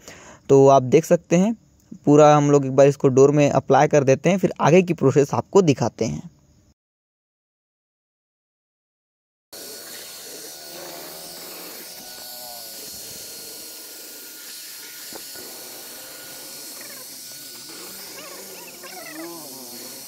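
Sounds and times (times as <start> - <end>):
steady hiss: 9.8 - 20.0.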